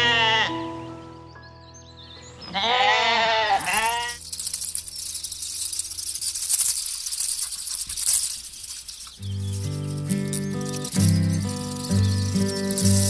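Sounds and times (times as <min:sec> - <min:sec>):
animal bleating: 0:00.0 - 0:00.7, 0:02.5 - 0:04.2
crackling rustling clicks: 0:03.5 - 0:13.0.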